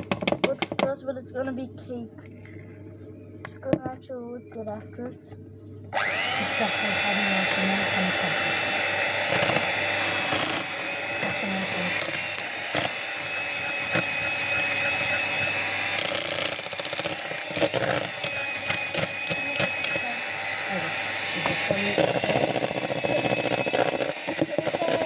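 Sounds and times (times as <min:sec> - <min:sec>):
electric hand mixer whirring: 0:05.9 - 0:25.0.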